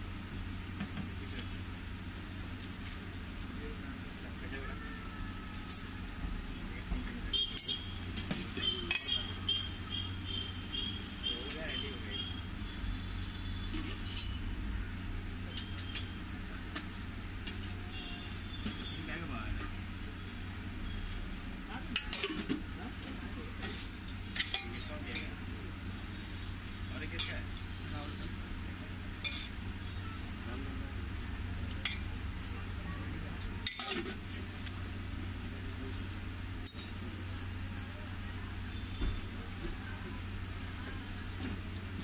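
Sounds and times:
low background hum: 0.0s - 42.0s
metal plates and utensils clinking: 7.4s - 9.2s, 21.9s - 22.6s, 23.6s - 25.3s, 29.2s - 29.6s, 33.4s - 34.2s
metal spoon clinking on pot: 29.2s - 29.5s, 33.4s - 34.2s, 36.6s - 37.0s.

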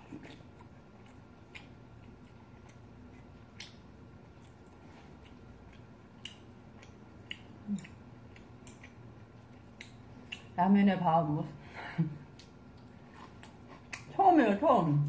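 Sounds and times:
chewing: 0.0s - 10.6s, 12.2s - 14.2s.

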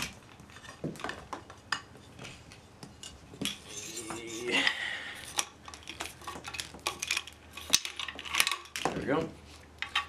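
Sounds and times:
metal clinking and knocking: 0.0s - 4.8s, 5.4s - 9.1s
scraping rub: 2.0s - 5.4s.

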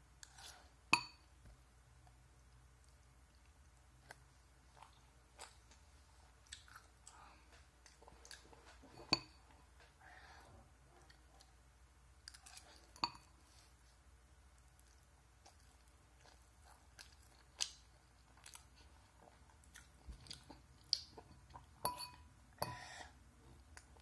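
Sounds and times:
person chewing: 2.5s - 9.5s, 12.2s - 13.6s, 14.6s - 22.2s
metal fork striking ceramic bowl: 21.9s - 22.2s.

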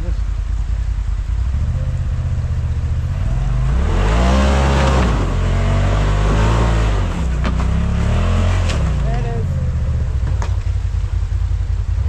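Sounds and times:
engine revving: 1.2s - 10.8s.

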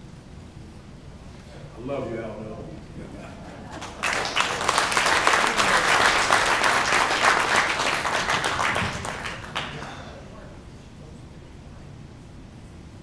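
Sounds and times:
audience applauding: 3.7s - 10.3s.

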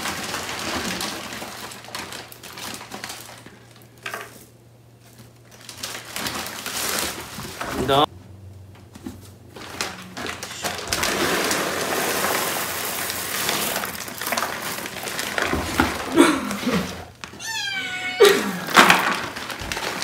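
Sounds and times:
litter pellets pouring into box: 10.4s - 15.6s
kitten meowing: 17.4s - 18.4s.

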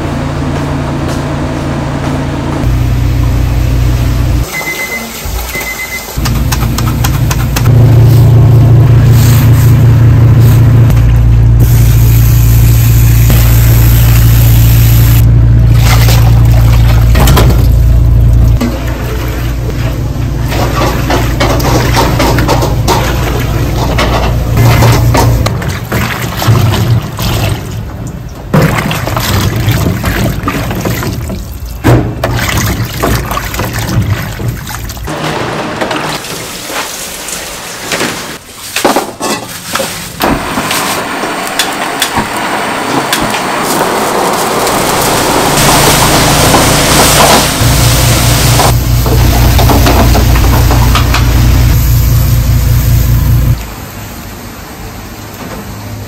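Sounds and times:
low hum: 0.0s - 4.5s, 6.2s - 29.9s, 44.6s - 54.2s
splashing and handling peppers: 15.7s - 35.2s, 36.0s - 42.0s.

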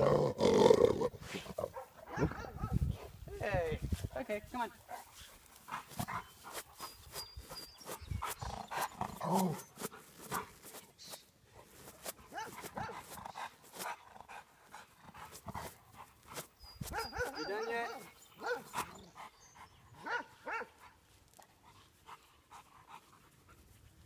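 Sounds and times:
dog barking: 1.7s - 3.1s, 12.3s - 13.1s, 16.9s - 18.9s, 20.0s - 20.8s.

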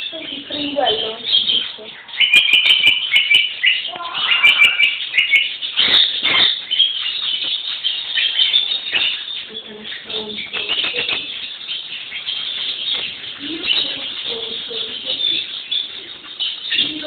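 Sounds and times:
ferrets squeaking and chirping: 0.0s - 17.0s.

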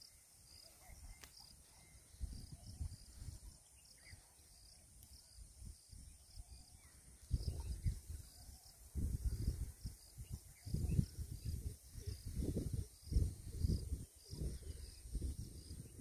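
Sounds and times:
faint high chirping: 0.0s - 16.0s
wind buffeting microphone: 2.1s - 3.6s, 5.6s - 16.0s.

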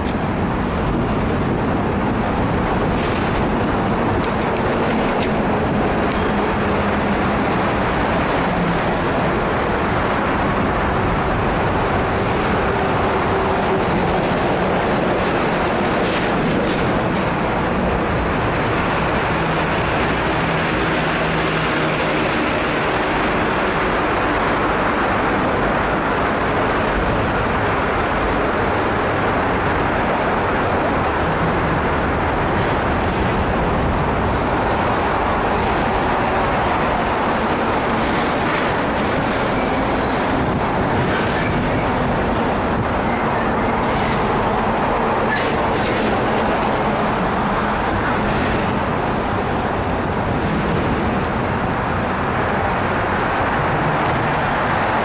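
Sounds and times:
bicycle riding noise: 0.0s - 55.0s.

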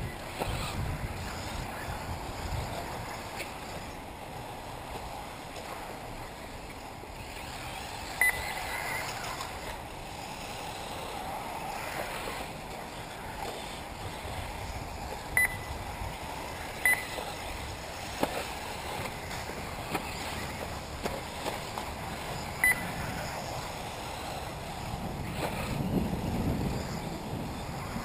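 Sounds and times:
outdoor background noise: 0.0s - 28.0s
short high electronic beeps: 8.2s - 9.0s, 15.4s - 15.7s, 16.8s - 17.2s, 22.6s - 22.9s.

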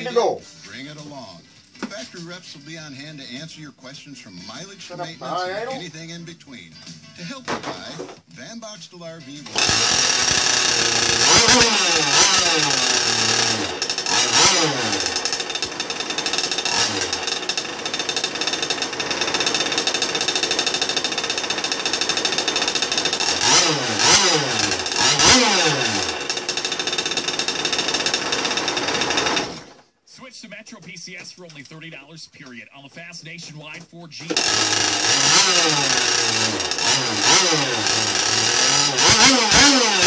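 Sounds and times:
model boat engine revving: 9.6s - 29.8s, 34.4s - 40.0s.

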